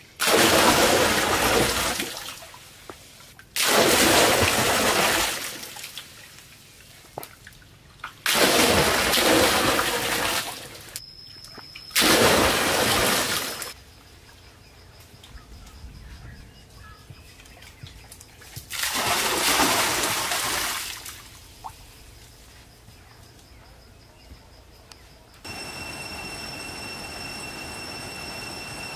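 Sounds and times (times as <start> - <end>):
water splashing: 0.2 - 2.9, 3.6 - 6.4, 7.2 - 11.0, 12.0 - 13.8, 18.4 - 21.8.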